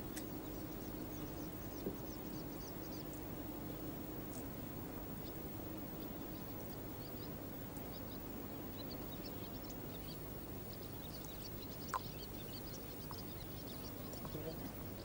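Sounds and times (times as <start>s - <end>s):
small birds chirping: 0.0s - 15.0s
steady low background noise: 0.0s - 15.0s.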